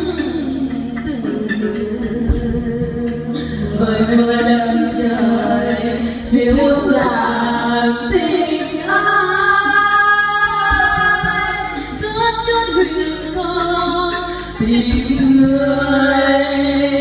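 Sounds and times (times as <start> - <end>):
women singing karaoke: 0.0 - 17.0.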